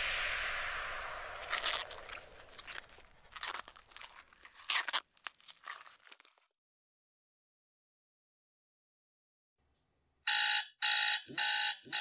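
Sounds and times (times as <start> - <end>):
loud hiss: 0.0 - 3.4
crackling and crunching clicks: 1.4 - 6.5.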